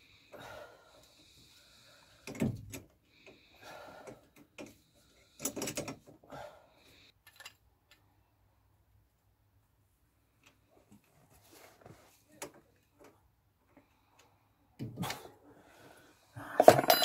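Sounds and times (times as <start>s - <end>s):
soft rustling: 10.7s - 12.4s
metal part knocking and clattering: 16.6s - 17.0s.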